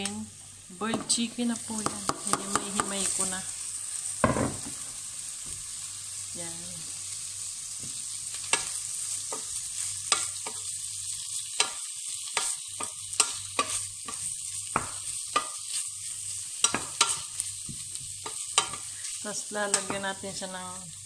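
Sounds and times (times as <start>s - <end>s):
garlic and onion sizzling: 0.0s - 21.0s.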